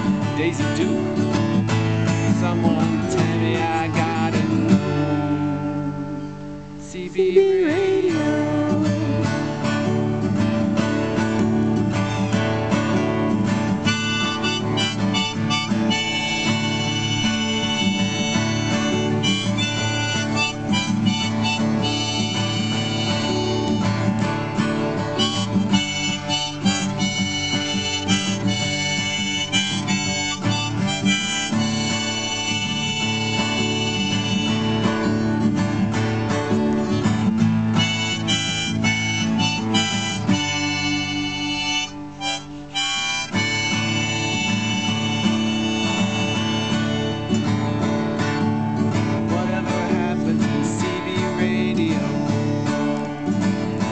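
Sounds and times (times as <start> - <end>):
acoustic guitar: 0.0 - 53.9
harmonica solo: 11.2 - 49.3.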